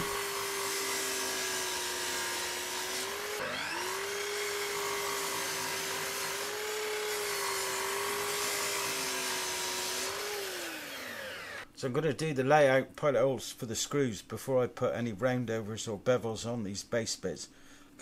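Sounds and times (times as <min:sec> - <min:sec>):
mitre saw cutting wood: 0:00.0 - 0:11.7.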